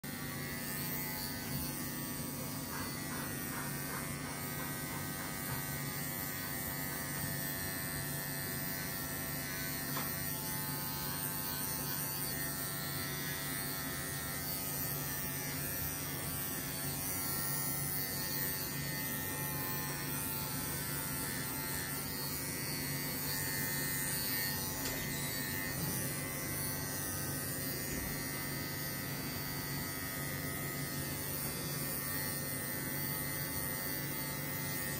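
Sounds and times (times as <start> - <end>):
electric clippers buzzing: 0.0 - 34.9.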